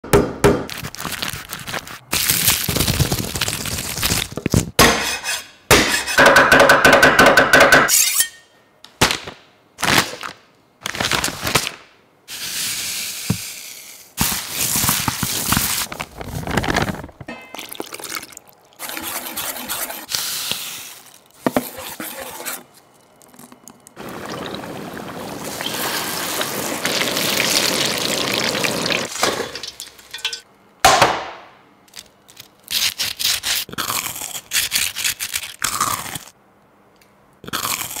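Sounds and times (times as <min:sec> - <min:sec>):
crisp crackling bursts: 0:14.2 - 0:17.3, 0:23.9 - 0:29.1
water pouring into a bowl: 0:17.5 - 0:19.2, 0:24.0 - 0:29.1
batter being mixed: 0:17.8 - 0:24.5
chicken deep-frying in oil: 0:23.5 - 0:30.4.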